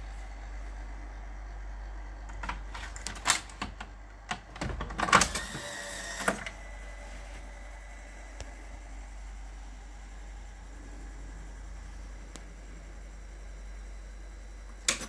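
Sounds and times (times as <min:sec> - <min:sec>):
steady low hum: 0:00.0 - 0:15.0
videocassette clicks and clunks: 0:02.3 - 0:06.6.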